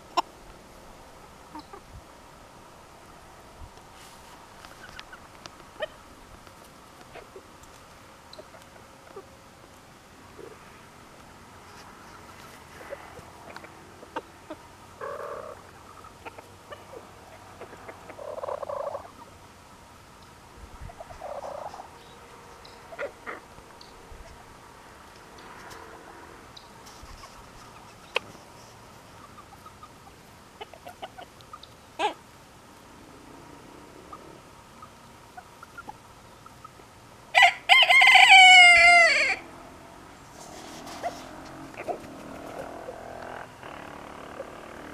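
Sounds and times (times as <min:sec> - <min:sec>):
chickens clucking softly: 0:01.4 - 0:02.0, 0:04.5 - 0:10.6, 0:11.6 - 0:19.5, 0:20.2 - 0:36.9, 0:40.2 - 0:43.0
faint clucks: 0:11.7 - 0:19.3, 0:26.5 - 0:32.2
rooster crowing: 0:37.3 - 0:39.5.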